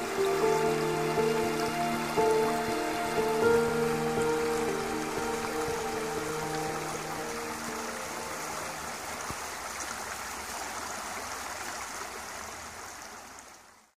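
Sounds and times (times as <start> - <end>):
held music notes: 0.0 - 9.3
creek rushing over stones: 0.0 - 13.9.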